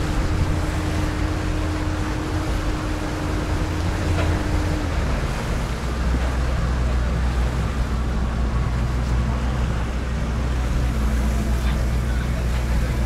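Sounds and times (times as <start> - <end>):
wind on microphone: 0.0 - 5.7
motorboat engine running: 0.0 - 13.0
water washing along hull: 0.0 - 13.0.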